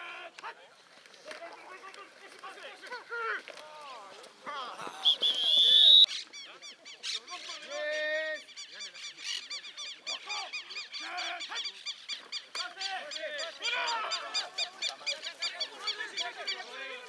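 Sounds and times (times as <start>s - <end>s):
birds calling: 4.8s - 17.0s.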